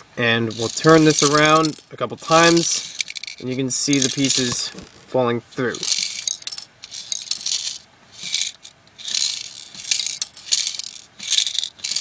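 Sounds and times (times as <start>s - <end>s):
plastic toy pieces rattling in drum: 0.5s - 5.0s, 5.8s - 12.0s.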